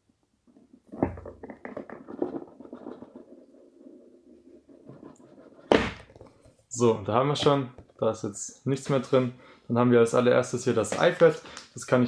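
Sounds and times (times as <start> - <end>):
cardboard box being shaken: 1.1 - 6.3.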